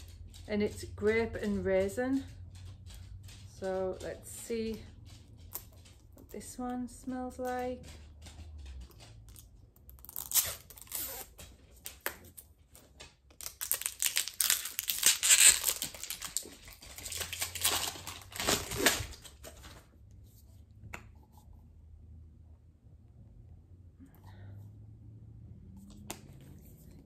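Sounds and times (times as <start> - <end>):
plastic seal tearing and crinkling: 9.9 - 12.4, 13.3 - 19.9.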